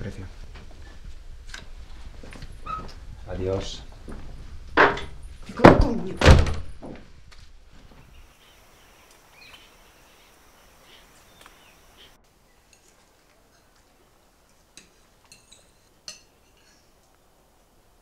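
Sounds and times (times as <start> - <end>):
soft rustling: 0.0 - 5.6, 6.9 - 9.7
cutlery clinking on plates: 14.8 - 16.9.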